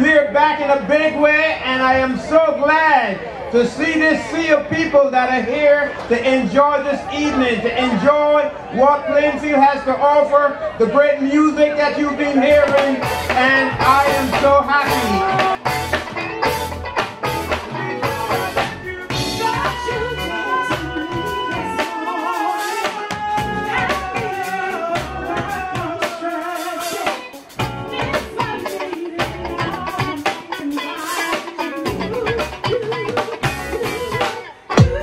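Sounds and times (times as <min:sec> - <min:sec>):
keyboards: 0:03.4 - 0:35.0
bass: 0:10.8 - 0:30.9, 0:31.7 - 0:35.0
melodic lead line: 0:12.4 - 0:35.0
drum kit beat: 0:12.5 - 0:35.0
electric guitar: 0:12.5 - 0:35.0.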